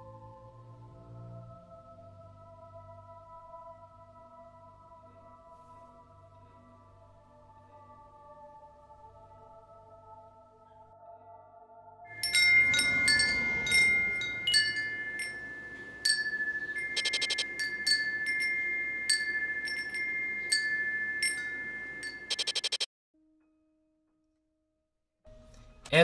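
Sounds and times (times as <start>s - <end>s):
wind chimes ringing: 12.1s - 22.8s.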